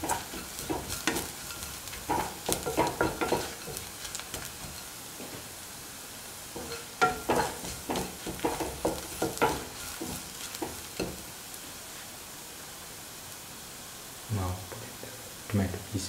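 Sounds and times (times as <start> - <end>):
spatula scraping a pan: 0.0 - 5.4, 6.6 - 12.1
shallots sizzling in hot oil: 0.0 - 16.0.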